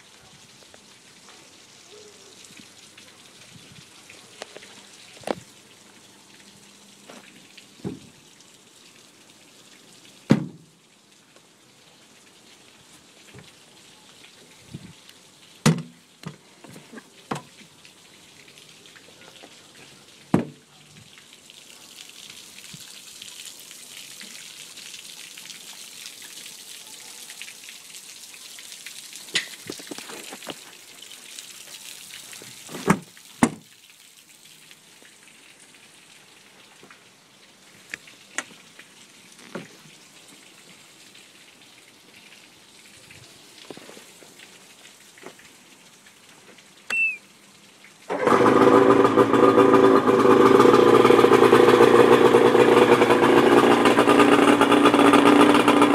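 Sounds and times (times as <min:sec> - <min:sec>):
light rain hiss: 0:00.0 - 0:49.3
knocks on aluminum boat: 0:10.3 - 0:10.6.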